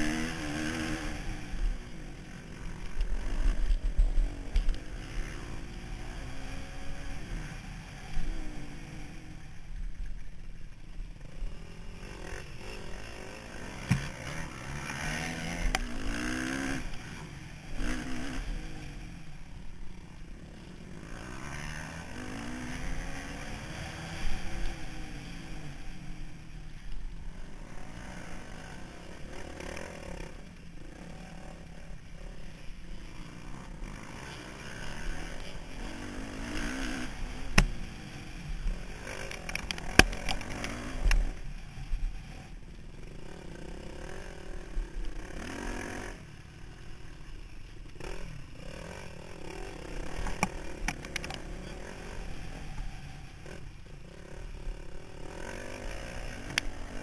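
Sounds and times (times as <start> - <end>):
motorbike engine revving: 27.6 - 57.0.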